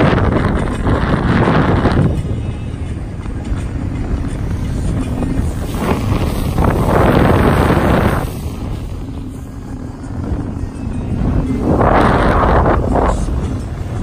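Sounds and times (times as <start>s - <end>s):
motorboat engine rumbling: 0.0s - 14.0s
wind buffeting microphone: 0.0s - 14.0s.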